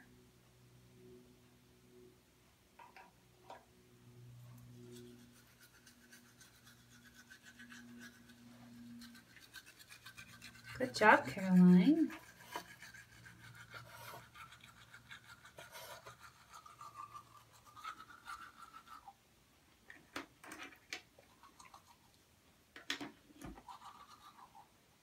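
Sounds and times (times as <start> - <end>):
toothbrush scrubbing teeth: 4.6 - 19.2, 21.2 - 22.2, 23.4 - 24.7.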